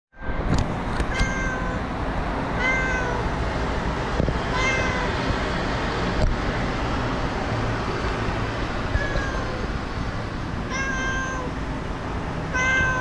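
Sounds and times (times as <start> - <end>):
cat meowing: 1.1 - 1.8, 2.6 - 3.3, 4.5 - 5.2, 8.9 - 9.7, 10.7 - 11.6, 12.5 - 13.0.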